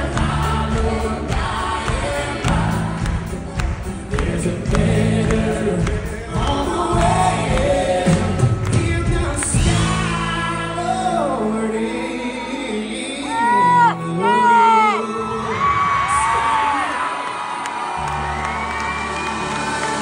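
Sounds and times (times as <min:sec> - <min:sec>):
group of voices singing: 0:00.0 - 0:16.2
man singing into a microphone: 0:04.1 - 0:16.8.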